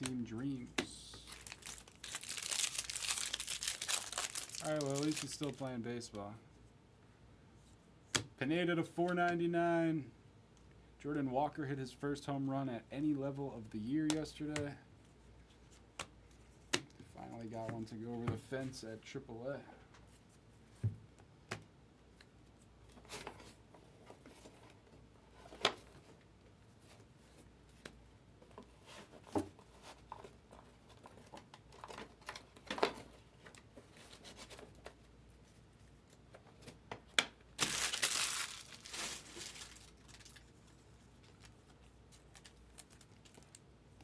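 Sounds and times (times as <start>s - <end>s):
foil wrappers crinkling: 1.0s - 5.7s, 37.6s - 43.6s
wrappers crumpling rustle: 1.0s - 5.7s, 37.6s - 43.6s.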